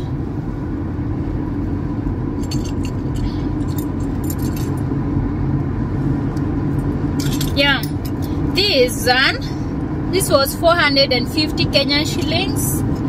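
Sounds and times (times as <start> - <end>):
car cabin rumble: 0.0 - 13.0
metal earrings jingling: 2.4 - 4.9, 7.1 - 8.4.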